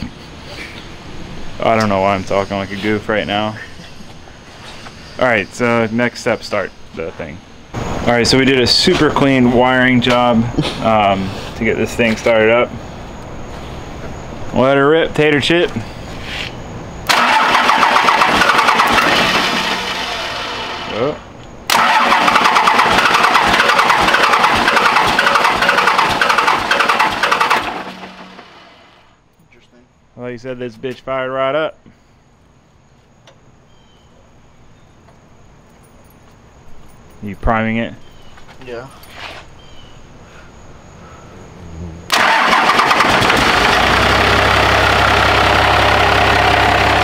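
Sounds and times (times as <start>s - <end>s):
diesel engine cranking: 17.0s - 29.1s, 42.1s - 47.0s.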